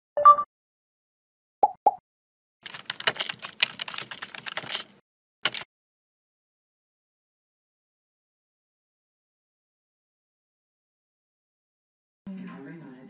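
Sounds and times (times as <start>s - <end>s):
brief tone: 0.2s - 0.5s
keyboard key clicks: 2.7s - 4.9s, 5.5s - 5.7s.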